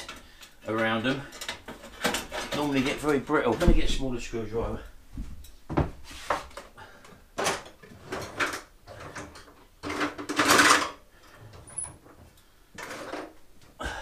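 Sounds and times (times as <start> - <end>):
hand tools clattering: 0.0 - 3.6, 7.4 - 12.0
metal drawer sliding: 7.5 - 12.0.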